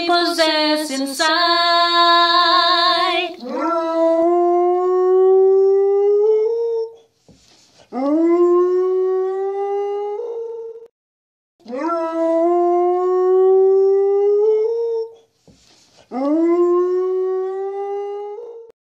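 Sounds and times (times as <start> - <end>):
dog howling: 3.4 - 7.0, 11.6 - 15.2, 16.1 - 18.7.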